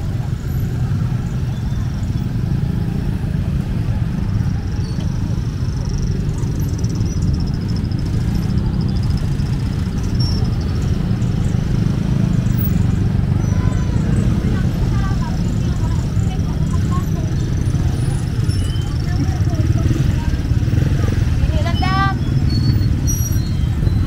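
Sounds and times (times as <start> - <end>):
motorcycle traffic rumble: 0.0 - 24.0.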